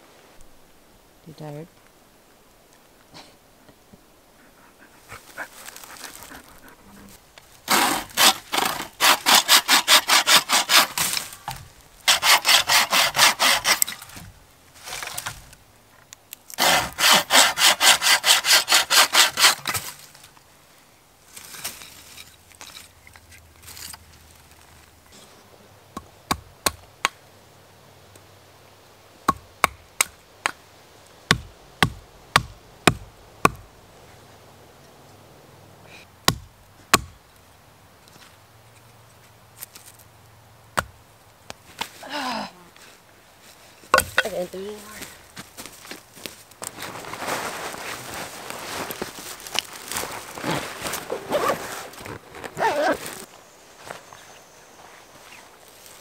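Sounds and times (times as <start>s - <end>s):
bucksaw cutting through branch: 7.6s - 15.5s, 16.5s - 20.2s
wooden mallet pounding stake: 31.3s - 33.6s, 36.3s - 37.1s, 43.9s - 44.4s.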